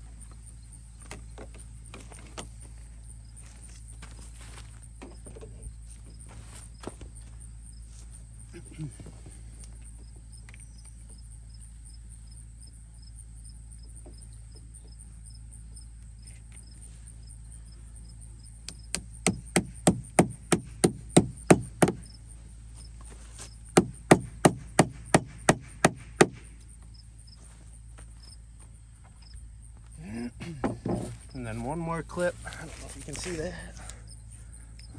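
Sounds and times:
hammer tapping on wood: 18.7 - 22.0, 23.8 - 26.4.

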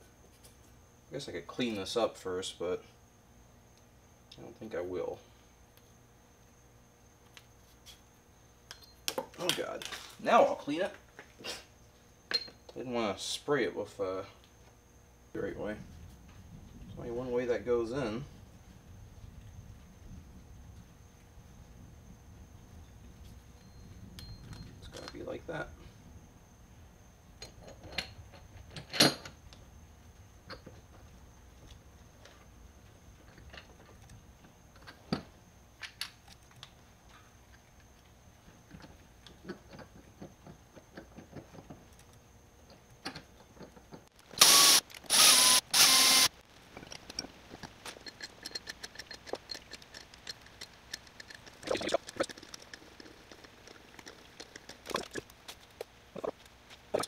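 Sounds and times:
metal parts clicking and clinking: 46.0 - 56.4.

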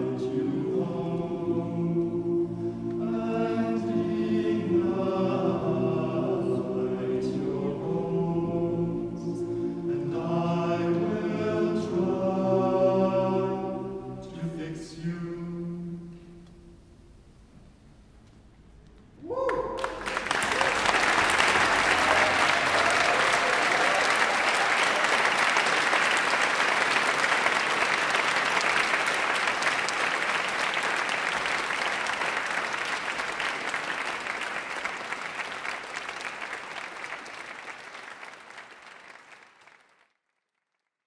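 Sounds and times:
audience applauding: 19.2 - 40.7.

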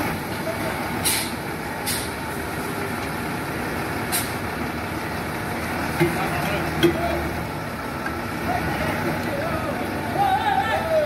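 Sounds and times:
diesel truck engine running: 0.0 - 11.0
air brake hisses: 1.0 - 2.2.

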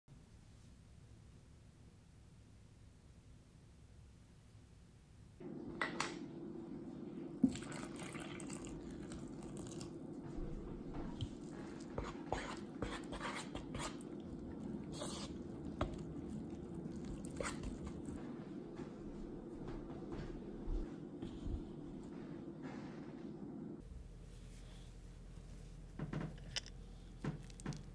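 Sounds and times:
steady low hum: 0.9 - 27.9
utensil stirring dough in bowl: 8.5 - 19.5.

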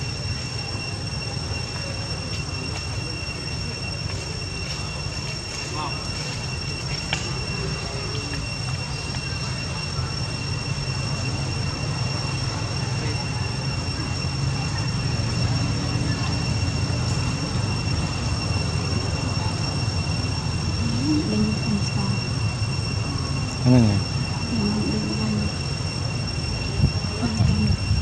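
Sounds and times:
high-pitched insect drone: 0.0 - 28.0
low steady rumble: 19.8 - 28.0.

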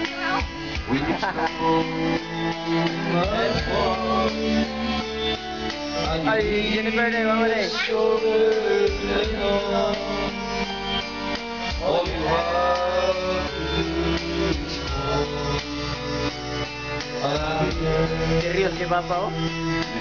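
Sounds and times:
karaoke backing music with guitar: 0.0 - 20.0.

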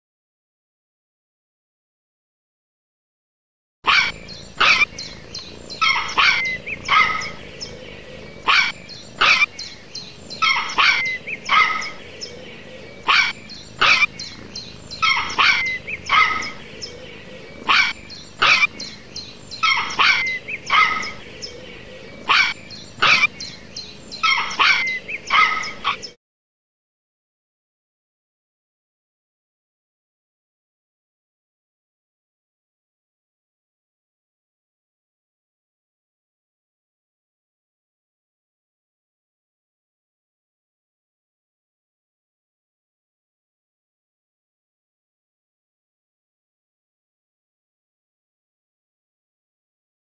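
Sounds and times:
dog barking: 3.9 - 4.9, 5.8 - 7.4, 8.5 - 9.5, 10.4 - 12.0, 13.1 - 14.1, 15.0 - 16.6, 17.6 - 18.8, 19.6 - 21.2, 22.2 - 23.3, 24.2 - 26.1.

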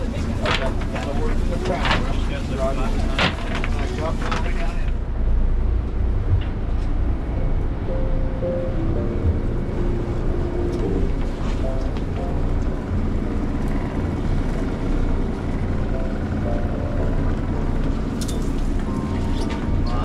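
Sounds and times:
boat engine rumbling: 0.0 - 20.0
faint background music: 6.2 - 20.0.

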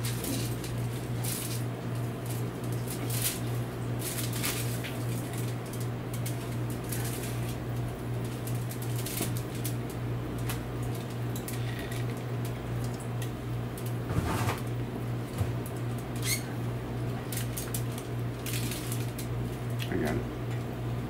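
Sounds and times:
steady low hum: 0.0 - 21.0
string rustling and squeaking: 16.2 - 16.5.

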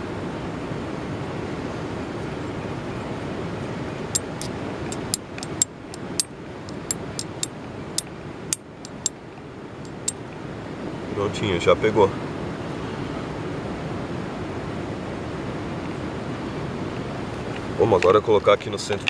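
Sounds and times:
steel striker clicking on flint: 4.2 - 9.2, 9.9 - 10.2.

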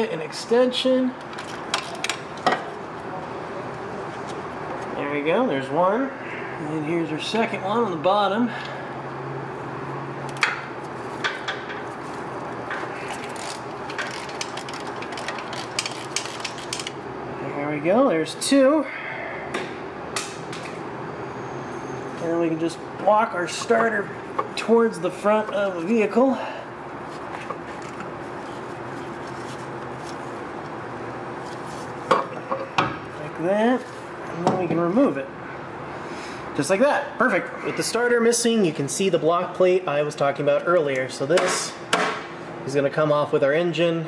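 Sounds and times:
steady low hum: 0.0 - 44.0
ratchet clicking: 13.2 - 17.0.

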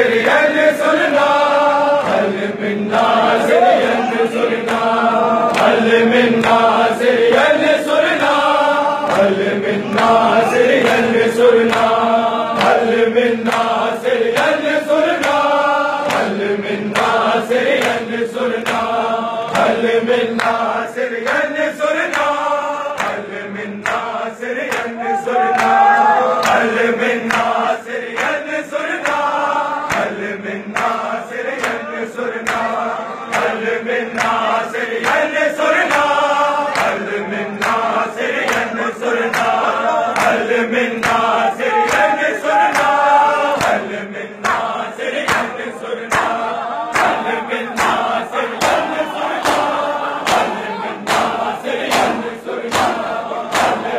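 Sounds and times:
crowd of men chanting: 0.0 - 53.9
hands slapping chests: 3.8 - 22.4, 23.0 - 53.9.

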